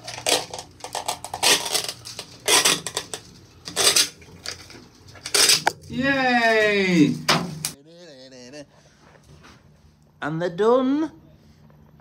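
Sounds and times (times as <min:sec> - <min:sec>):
plastic parts clattering and scraping: 0:00.0 - 0:05.9.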